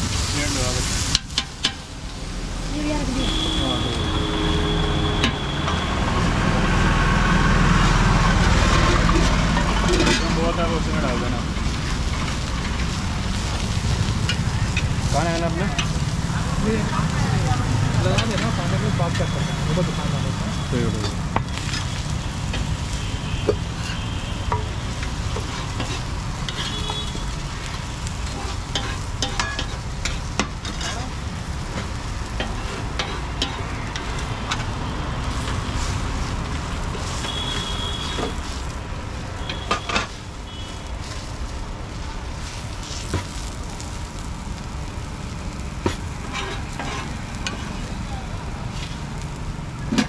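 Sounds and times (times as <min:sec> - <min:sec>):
food sizzling on a griddle: 0:00.0 - 0:50.0
road traffic rumble: 0:00.0 - 0:50.0
metal spatula clicks and scrapes: 0:23.8 - 0:26.9, 0:28.2 - 0:34.7, 0:45.8 - 0:47.8.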